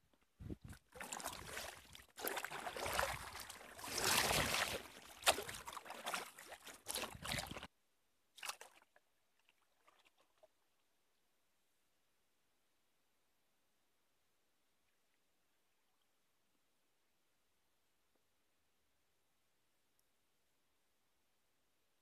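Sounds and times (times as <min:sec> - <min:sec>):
water splashing around a kayak: 0:00.0 - 0:07.7, 0:08.3 - 0:10.8.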